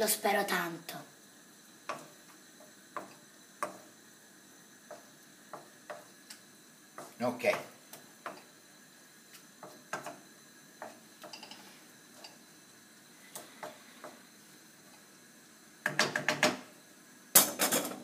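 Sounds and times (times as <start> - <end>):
spatula stirring noodles in wok: 1.2 - 15.3
spatula knocking on pan: 2.9 - 3.9, 4.8 - 6.1, 15.8 - 16.6.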